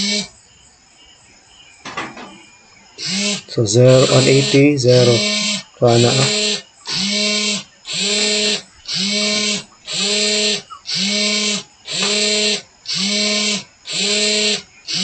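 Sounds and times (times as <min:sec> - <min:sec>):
servo motor whirring: 0:03.0 - 0:15.0.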